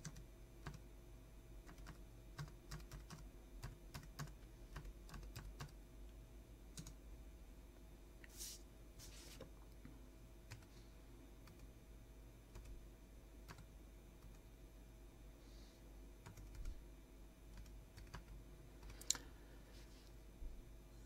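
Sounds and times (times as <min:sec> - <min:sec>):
keyboard typing: 0:00.0 - 0:00.8, 0:01.6 - 0:05.8, 0:06.8 - 0:07.0, 0:10.5 - 0:10.7, 0:11.4 - 0:11.7, 0:12.5 - 0:12.8, 0:13.4 - 0:14.4, 0:16.2 - 0:16.8, 0:17.5 - 0:19.2
low steady hum: 0:00.0 - 0:21.0.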